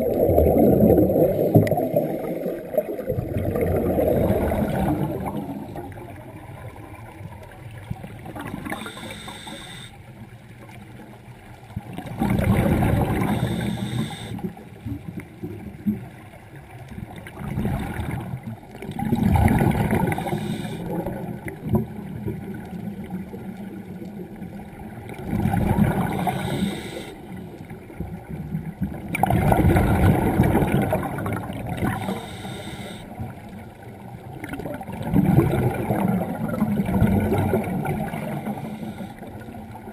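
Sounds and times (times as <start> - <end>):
exhaled bubbles gurgling: 0.0 - 9.9, 10.9 - 39.9
diver breathing through regulator: 8.6 - 10.0, 13.0 - 14.6, 19.9 - 21.1, 26.0 - 27.4, 31.8 - 33.2, 38.3 - 39.6.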